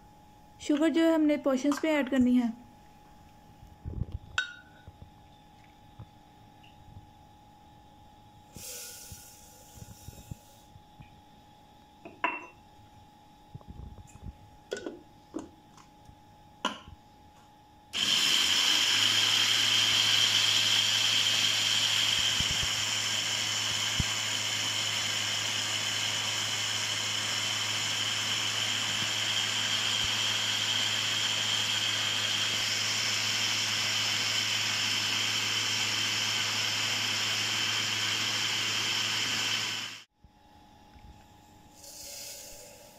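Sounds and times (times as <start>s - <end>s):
blender motor humming: 18.0s - 40.1s.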